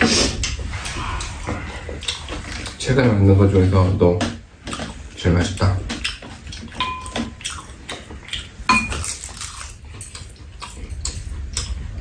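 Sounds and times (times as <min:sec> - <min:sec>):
metal utensils clinking on bowls: 0:06.6 - 0:07.4, 0:08.7 - 0:09.2.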